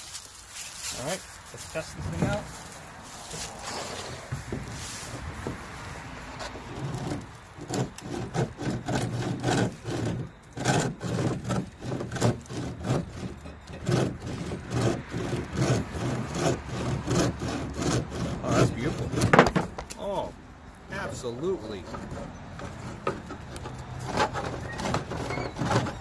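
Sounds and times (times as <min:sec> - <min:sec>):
bow saw cutting branch: 0:06.4 - 0:20.2.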